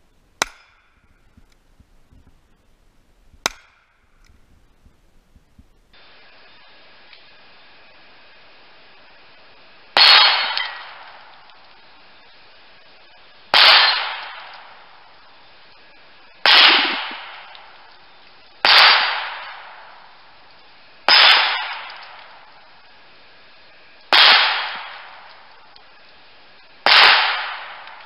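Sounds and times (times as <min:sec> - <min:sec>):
steel targets ringing: 0:10.0 - 0:11.2
rifle shots: 0:10.0 - 0:11.4, 0:13.5 - 0:14.9, 0:16.4 - 0:17.8, 0:18.6 - 0:19.9, 0:21.1 - 0:22.4, 0:24.1 - 0:25.5, 0:26.8 - 0:28.0.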